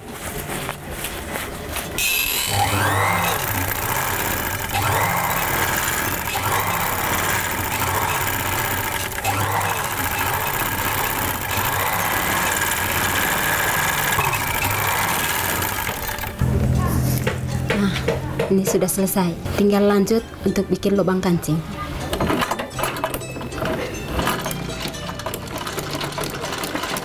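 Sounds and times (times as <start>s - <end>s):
overlock sewing machine stitching: 2.1s - 16.4s, 22.2s - 27.0s.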